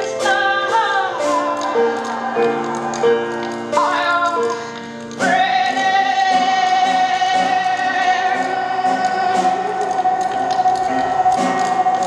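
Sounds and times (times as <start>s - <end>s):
piano chords: 0.0s - 12.0s.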